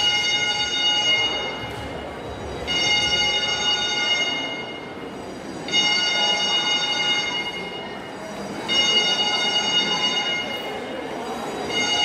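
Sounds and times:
fire alarm horn blasts: 0.0s - 4.9s.

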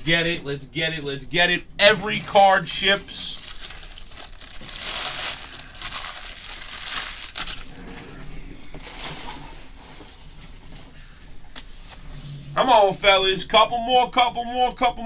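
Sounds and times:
plastic wrappers crinkling: 2.9s - 7.9s.

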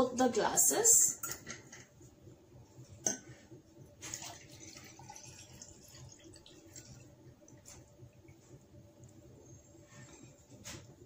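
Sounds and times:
water trickling into glass: 4.2s - 7.1s.

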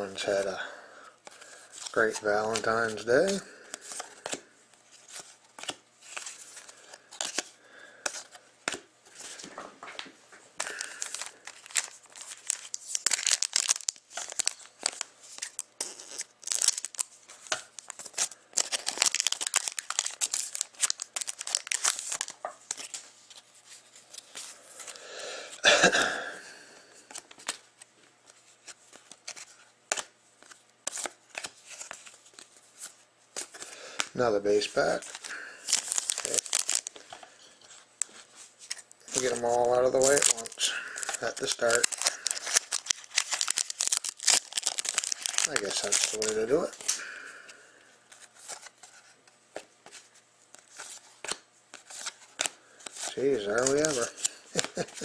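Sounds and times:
foil pack tearing and crinkling: 10.6s - 23.0s, 34.5s - 37.3s, 38.0s - 47.3s, 52.0s - 55.0s
cards flicked against each other: 29.9s - 31.9s.

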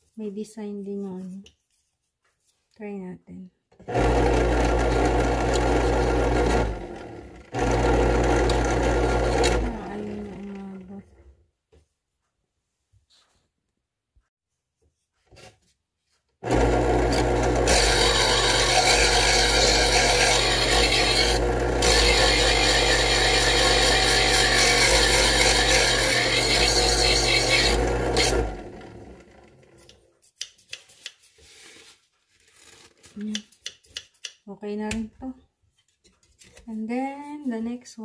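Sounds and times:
knife sharpener motor humming: 3.9s - 10.8s, 16.4s - 29.9s
scissor blade grinding: 17.0s - 28.4s.

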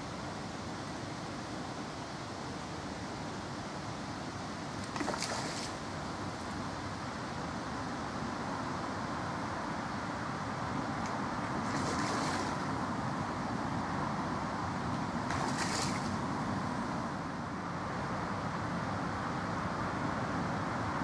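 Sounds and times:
steady rumbling background noise: 0.0s - 21.0s
fish splashing at surface: 4.9s - 5.8s, 15.3s - 16.2s.

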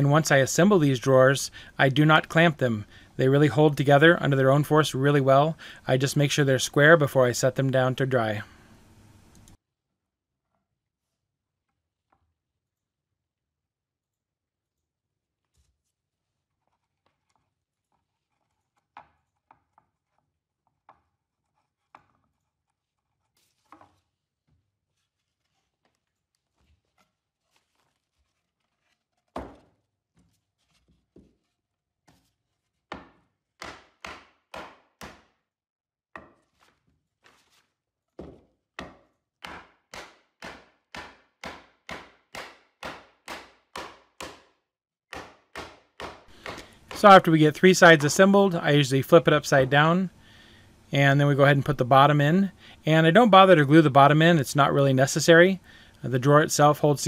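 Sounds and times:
mallet striking wood: 32.9s - 35.3s, 38.8s - 44.5s, 45.1s - 46.8s.

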